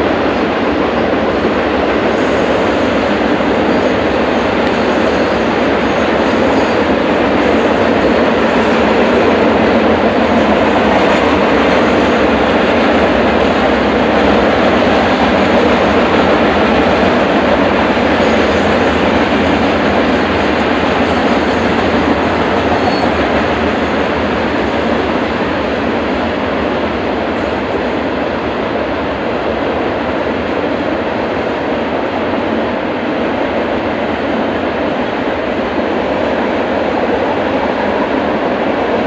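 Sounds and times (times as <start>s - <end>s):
freight train wheels rolling on track: 0.0s - 39.0s.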